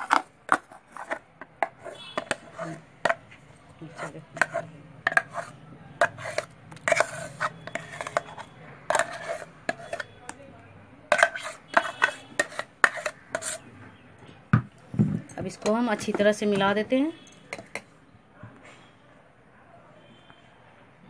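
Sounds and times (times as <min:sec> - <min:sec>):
metal spoon scraping steel jar: 0:00.0 - 0:03.2, 0:03.8 - 0:10.4, 0:11.1 - 0:13.7
spoon clinking against jar: 0:04.4 - 0:10.2.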